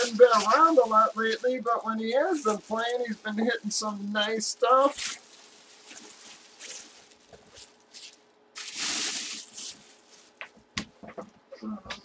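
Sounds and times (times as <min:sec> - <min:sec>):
plastic bag crinkling: 0:00.0 - 0:10.5.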